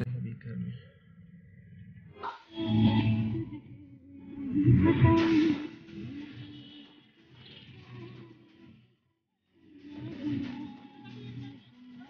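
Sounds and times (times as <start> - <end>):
background music: 2.4 - 8.6, 9.5 - 12.0.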